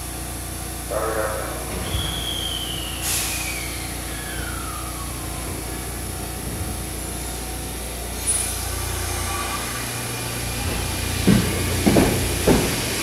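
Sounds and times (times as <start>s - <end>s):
electric train humming: 0.0s - 13.0s
falling whine: 0.8s - 11.0s
air hiss: 2.1s - 5.1s.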